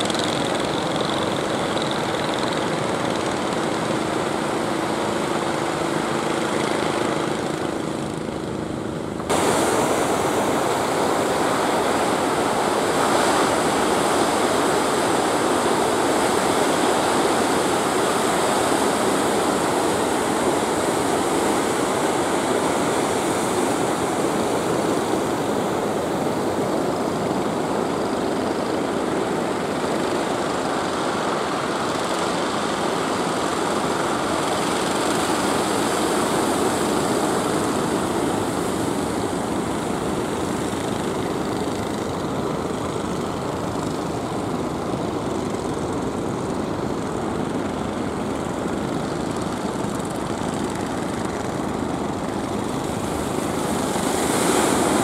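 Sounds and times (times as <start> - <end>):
fishing boat engines droning: 0.0 - 55.0
surf breaking on shore: 9.0 - 44.7, 47.9 - 55.0.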